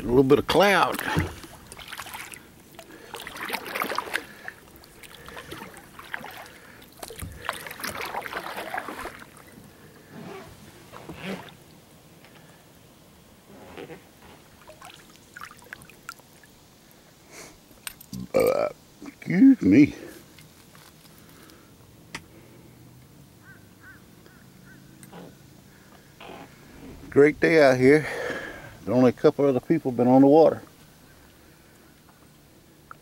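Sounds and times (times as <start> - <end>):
paddle splashing in water: 0.8 - 9.7, 14.4 - 16.5
water dripping: 14.6 - 16.6
person making throat sound: 18.2 - 18.7.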